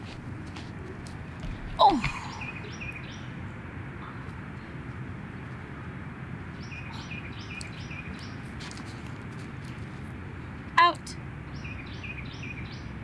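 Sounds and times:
outdoor background noise: 0:00.0 - 0:13.0
bird chirping: 0:00.8 - 0:04.8, 0:06.5 - 0:08.7, 0:11.4 - 0:13.0.

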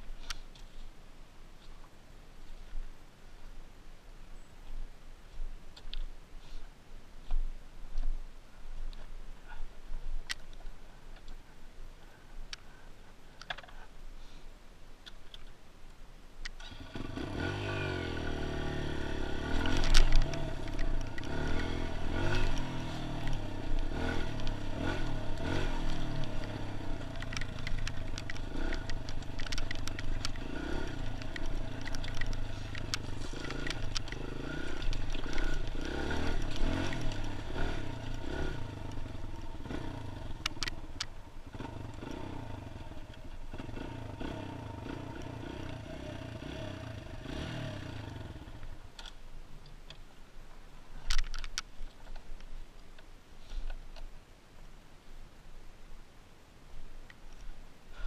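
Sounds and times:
dirt bike engine revving: 0:16.6 - 0:48.6.

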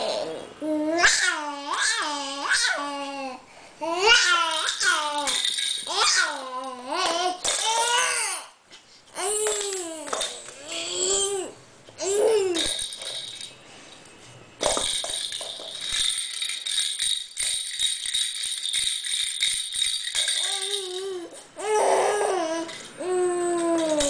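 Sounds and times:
baby babbling: 0:00.0 - 0:08.5, 0:09.2 - 0:12.7, 0:20.4 - 0:24.0
baby rattle shaken: 0:04.1 - 0:08.2, 0:09.2 - 0:11.4, 0:12.0 - 0:13.6, 0:14.6 - 0:24.0.

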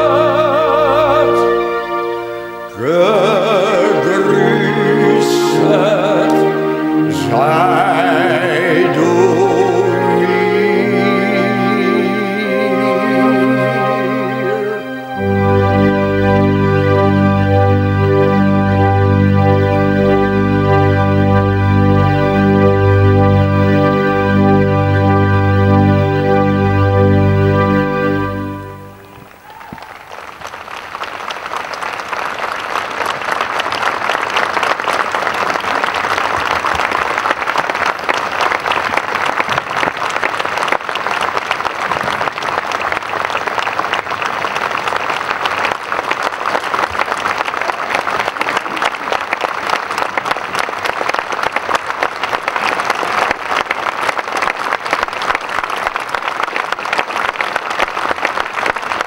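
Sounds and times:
audience applause: 0:28.4 - 0:59.0.

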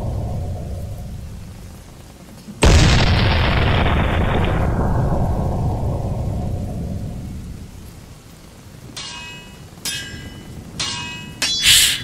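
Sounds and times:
deep rumble: 0:00.0 - 0:07.8
stormy hiss: 0:00.0 - 0:12.0
sharp metallic clang: 0:09.0 - 0:12.0.

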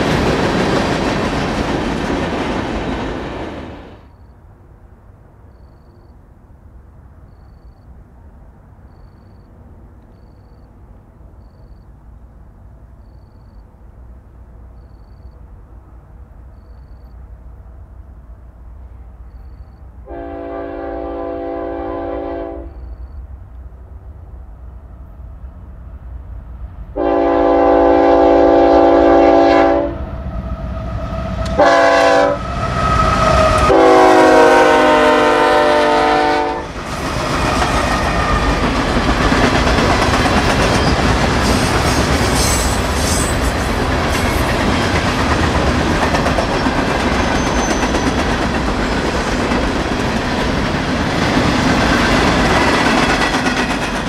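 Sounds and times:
train wheels clacking over rail joints: 0:00.0 - 0:03.6, 0:36.7 - 0:54.0
locomotive horn blasts: 0:20.1 - 0:22.8, 0:27.0 - 0:30.0, 0:31.3 - 0:36.7.

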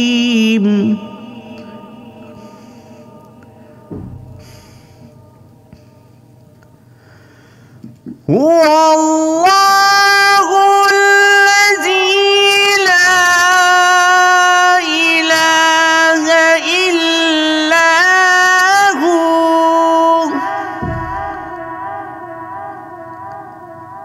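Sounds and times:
man reciting melodically: 0:08.2 - 0:22.9.

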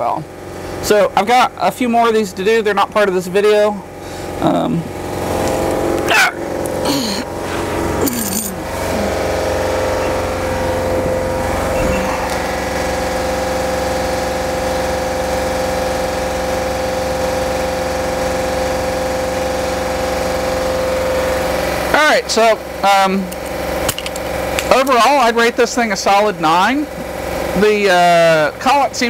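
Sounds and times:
steady mechanical hum: 0:00.0 - 0:29.0
metal tools clattering: 0:08.0 - 0:08.7.

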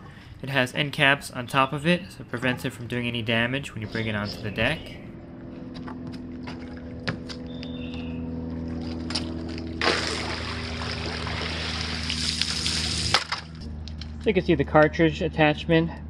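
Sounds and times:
low electric hum: 0:00.0 - 0:16.0
water pouring and splashing: 0:09.4 - 0:13.6.

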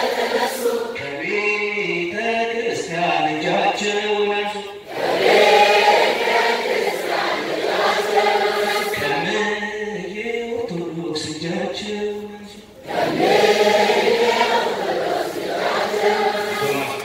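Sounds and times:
crowd singing together: 0:00.0 - 0:02.9, 0:04.5 - 0:17.0
man singing through microphone: 0:00.9 - 0:04.9, 0:08.9 - 0:12.8.

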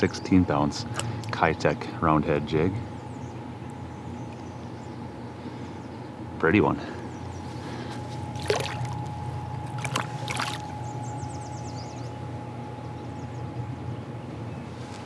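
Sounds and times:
steady low hum: 0:00.0 - 0:15.0
faint steady tone: 0:06.8 - 0:14.1
water splashing: 0:08.3 - 0:09.1, 0:09.7 - 0:10.8.

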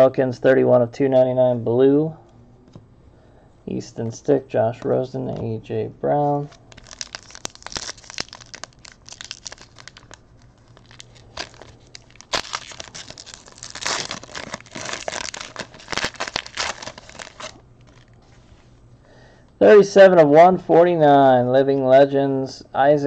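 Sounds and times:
foil wrappers crinkling and tearing: 0:06.5 - 0:18.2.

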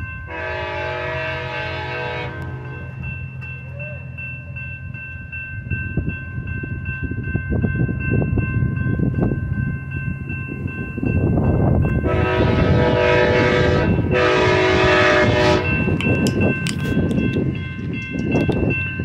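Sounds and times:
railroad crossing bell ringing: 0:00.0 - 0:19.0
train horn: 0:00.3 - 0:02.9, 0:12.0 - 0:15.9.

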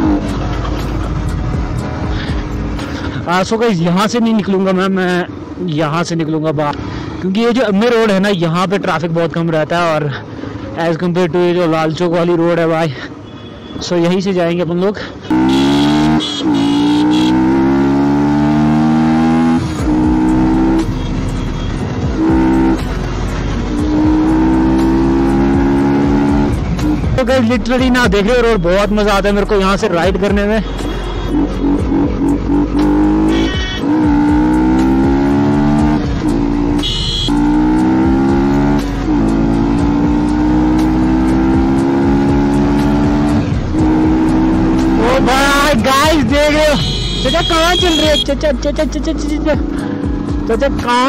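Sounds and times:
motorcycle engine accelerating: 0:15.3 - 0:21.3, 0:22.0 - 0:27.2, 0:31.3 - 0:46.5.

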